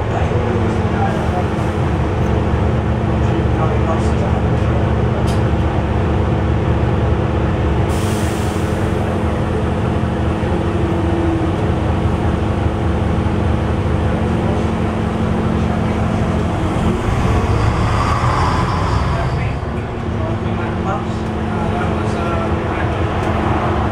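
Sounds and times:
bus diesel engine running: 0:00.0 - 0:23.9
road noise: 0:00.0 - 0:23.9.

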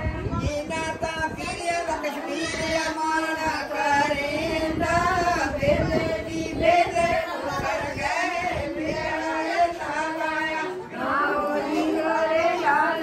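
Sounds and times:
women and girl singing in unison: 0:00.0 - 0:13.0.

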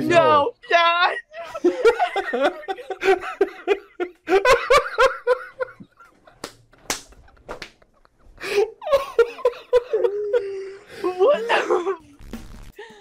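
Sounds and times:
people laughing: 0:01.3 - 0:12.0.

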